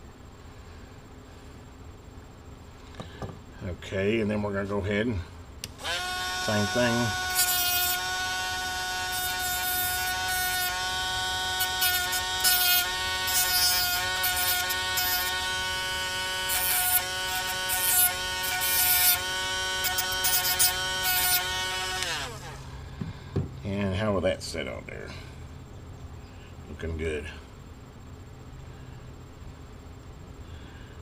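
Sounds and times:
rotary tool whining: 5.6 - 23.2
cut-off wheel grinding metal: 5.7 - 22.8.

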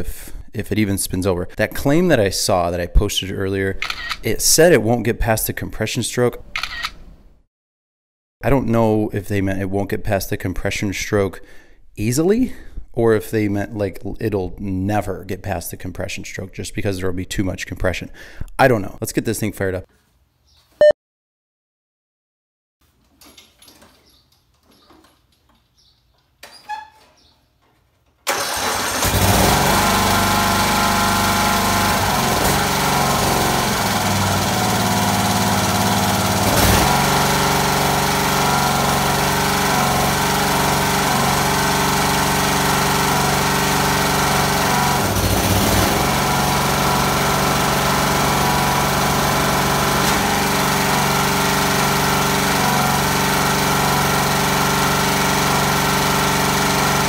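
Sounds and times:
electric starter cranking: 28.2 - 57.0
mower engine running: 28.3 - 57.0.

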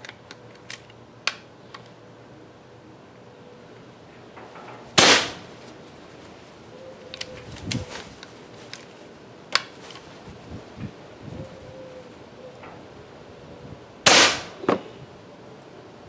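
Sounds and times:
air rifle shot with ringing tail: 5.0 - 5.5, 14.1 - 14.8.

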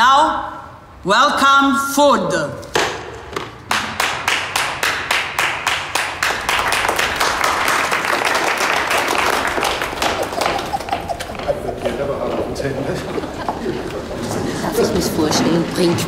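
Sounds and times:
steady single clap: 2.7 - 11.1
group of people clapping: 3.4 - 12.4.

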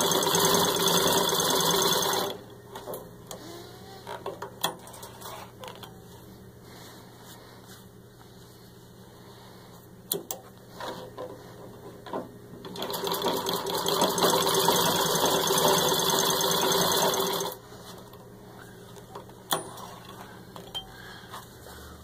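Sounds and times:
treadle sewing machine stitching: 0.0 - 2.4, 12.6 - 17.6.

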